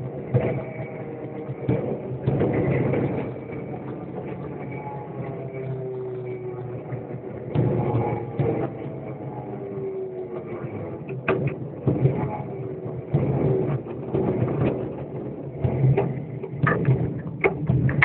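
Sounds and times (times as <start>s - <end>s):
knocks and rattles: 11.0s - 18.0s.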